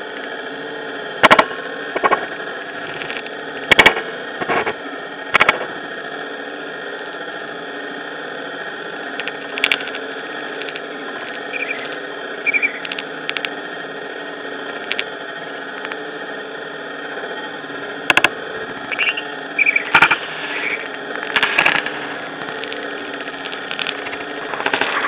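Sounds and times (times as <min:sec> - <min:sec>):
sharp clicks: 0:18.1 - 0:18.3.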